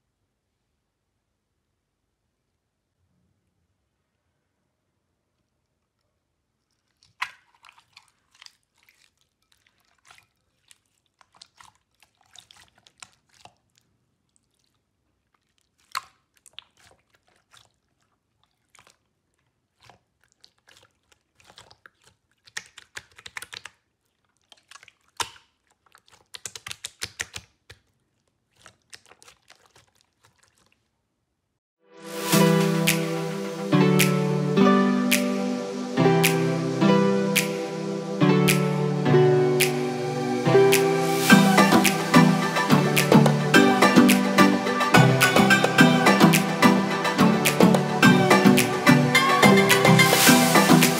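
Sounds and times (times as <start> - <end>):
slime wet clicks and pops: 7.1 - 7.8, 24.6 - 27.9.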